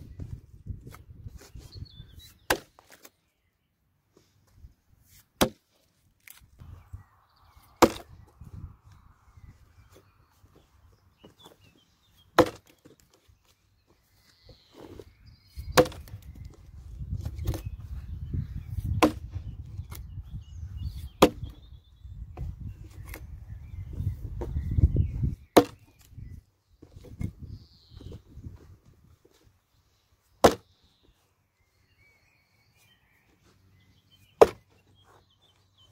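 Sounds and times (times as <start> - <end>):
axe chopping into log: 2.5 - 3.0, 5.4 - 5.6, 7.8 - 8.2, 12.4 - 12.8, 15.6 - 16.2, 18.8 - 19.3, 21.2 - 21.6, 25.5 - 26.0, 30.4 - 30.7, 34.4 - 34.8.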